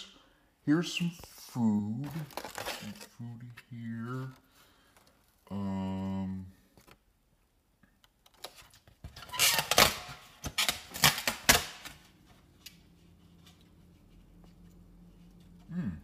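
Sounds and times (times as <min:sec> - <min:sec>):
foam container crackling: 0:01.9 - 0:03.2.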